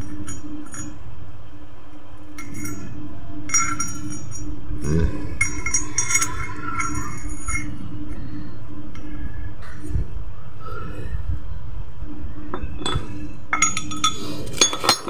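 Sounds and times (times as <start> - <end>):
metal clinking and ringing: 0.0 - 1.1, 2.3 - 4.7, 5.3 - 8.2, 12.5 - 15.0.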